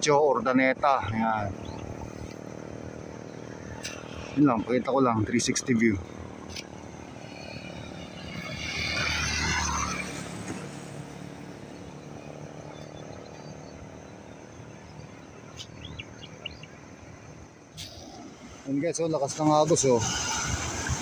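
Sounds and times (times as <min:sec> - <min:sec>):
steady outdoor hiss: 0:00.0 - 0:21.0
vehicle passing by: 0:00.4 - 0:21.0.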